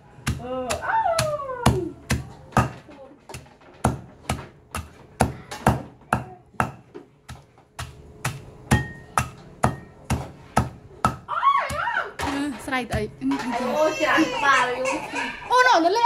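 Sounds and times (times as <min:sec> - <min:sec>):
knife chopping on wooden board: 0:00.2 - 0:11.2.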